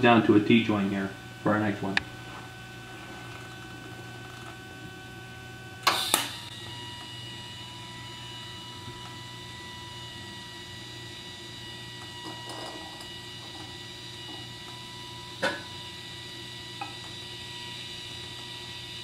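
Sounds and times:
welder low hum: 0.0 - 19.0
welding arc hum with whine: 0.0 - 19.0
welding arc crackle: 2.0 - 7.7.

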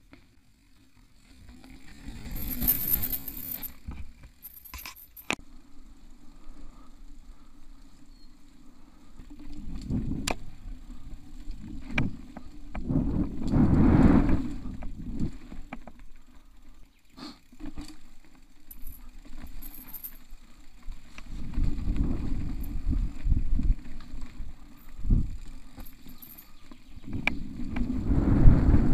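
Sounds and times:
bike tyres rumbling on dirt trail: 0.0 - 4.5, 5.4 - 28.9
bike knocks and rattles: 1.1 - 5.4, 9.6 - 13.6.

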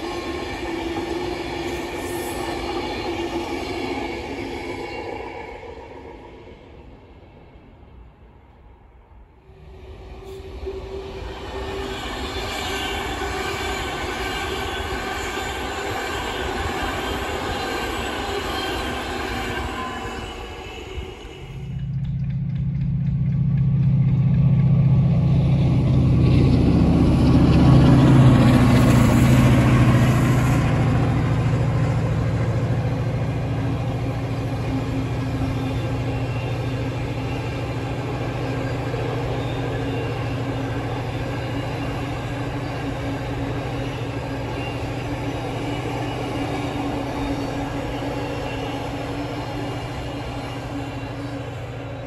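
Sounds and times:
diesel locomotive engine: 0.0 - 52.0
train wagons clattering on rails: 11.6 - 52.0.

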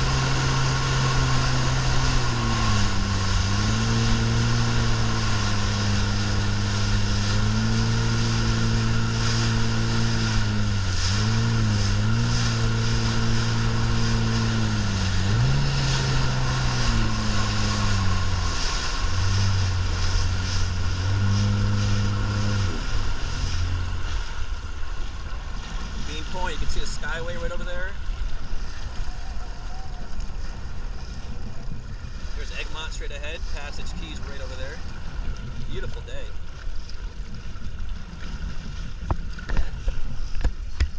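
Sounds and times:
water spray rushing: 0.0 - 27.8
motorboat engine: 0.0 - 40.9
wind: 0.0 - 40.9.

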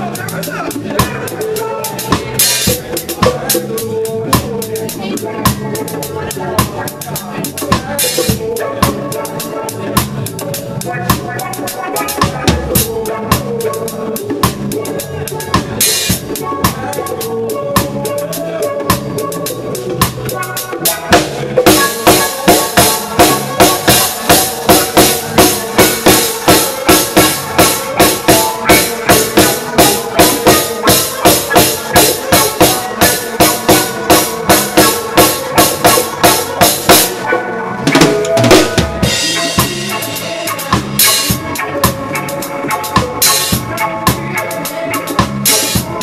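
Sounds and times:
drum kit playing: 0.0 - 46.0
reggae band instruments: 0.0 - 46.0.

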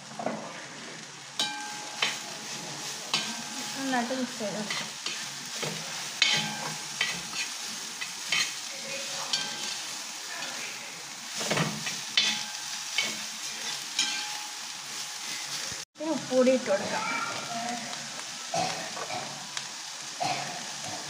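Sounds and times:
onions sizzling in hot oil: 0.0 - 21.0
metal spoon scraping a pan: 1.4 - 10.7, 11.3 - 15.6.

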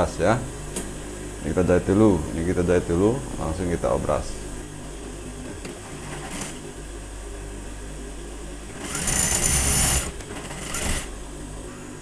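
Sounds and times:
sewing machine motor hum: 5.0 - 6.8, 8.6 - 11.4
sewing machine needle running fast: 5.9 - 6.6, 8.7 - 11.1.

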